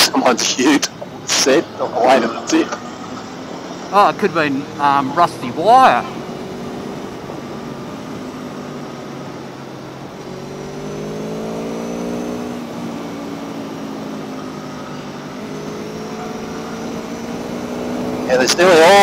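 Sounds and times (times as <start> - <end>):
wind and tyre noise: 0.0 - 19.0
motorcycle engine accelerating: 2.9 - 19.0.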